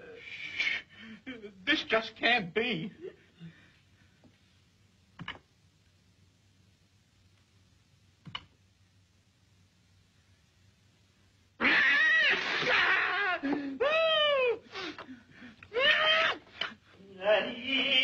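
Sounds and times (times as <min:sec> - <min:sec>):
cat yowling and meowing: 0:11.6 - 0:13.1.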